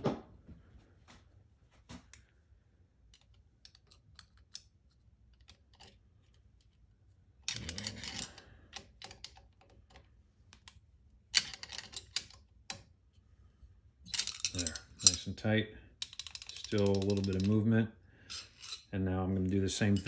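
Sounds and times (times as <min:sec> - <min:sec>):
metal clicks of hand tools: 0:07.5 - 0:10.8, 0:16.0 - 0:17.6.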